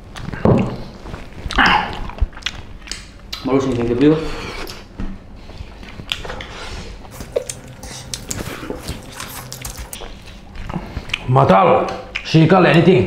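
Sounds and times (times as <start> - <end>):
chewing: 0.1 - 12.3
fingers squishing rice and curry: 6.0 - 11.3.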